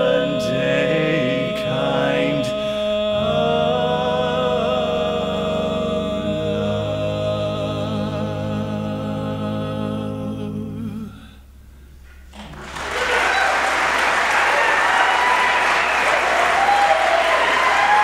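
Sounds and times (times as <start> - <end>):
men singing unaccompanied chord: 0.0 - 11.3
audience applause: 12.4 - 18.0.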